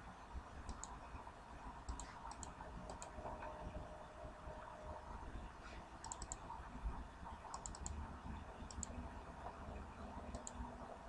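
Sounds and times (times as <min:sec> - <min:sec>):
faint computer mouse clicks: 0:00.6 - 0:01.0, 0:01.8 - 0:03.2, 0:06.0 - 0:06.5, 0:07.5 - 0:08.0, 0:08.7 - 0:09.0, 0:10.3 - 0:10.7.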